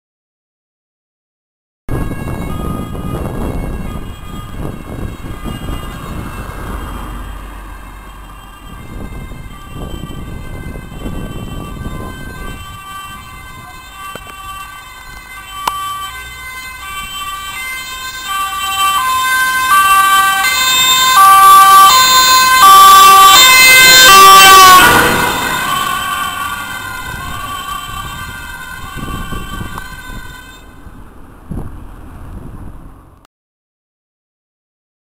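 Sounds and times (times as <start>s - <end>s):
ambulance two-tone siren: 1.9s - 30.9s
car driving by: 5.0s - 9.4s, 14.5s - 33.2s.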